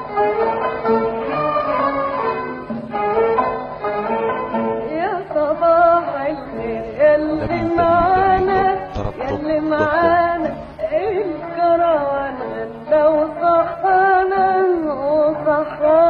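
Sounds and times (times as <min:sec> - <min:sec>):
background music: 0:00.0 - 0:16.0
person singing wavering melody: 0:07.3 - 0:11.4.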